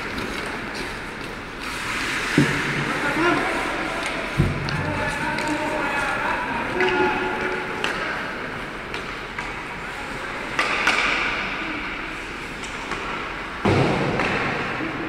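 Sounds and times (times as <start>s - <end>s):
sticks striking puck: 6.7s - 9.8s, 10.4s - 11.6s, 12.5s - 14.8s
loud thud: 13.6s - 14.4s.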